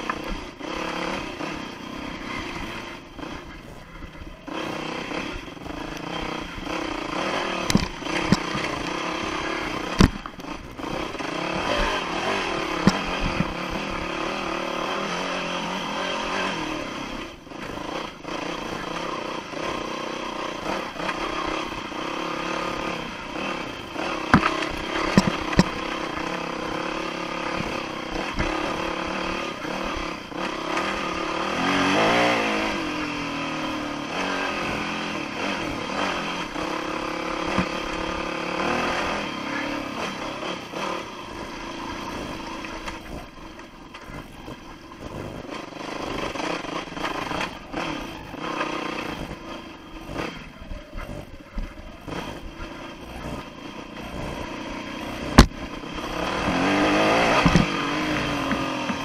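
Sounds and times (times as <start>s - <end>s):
dirt bike engine revving: 0.0s - 59.0s
sharp knocks and clatters: 56.4s - 59.0s.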